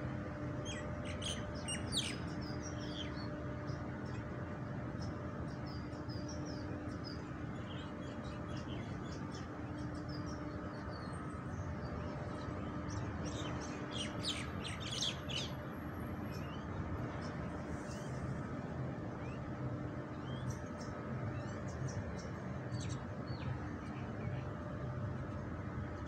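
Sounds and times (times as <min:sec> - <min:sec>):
steady low hum: 0:00.0 - 0:26.0
small birds chirping: 0:00.1 - 0:15.7, 0:16.3 - 0:26.0.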